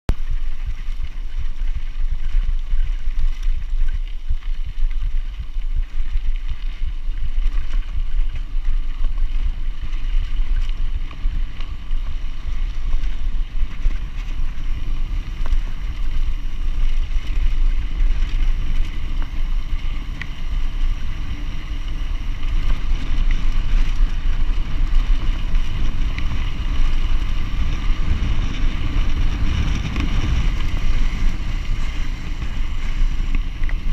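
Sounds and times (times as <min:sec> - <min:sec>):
bike tyres rattling on gravel: 0:00.1 - 0:33.9
wind buffeting microphone: 0:00.1 - 0:33.9.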